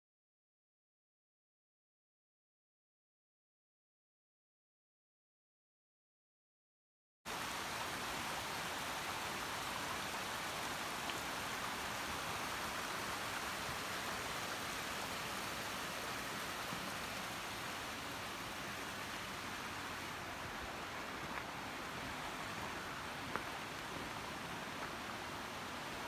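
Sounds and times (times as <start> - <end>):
stream rushing over rocks: 7.3 - 26.0.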